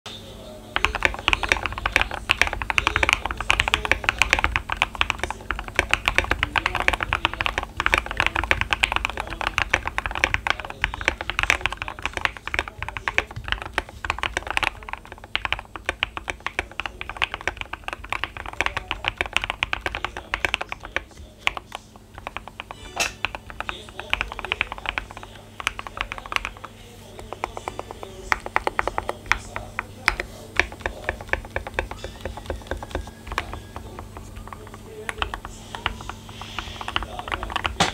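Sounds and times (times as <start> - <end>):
fast mechanical keyboard typing: 0.7 - 37.9.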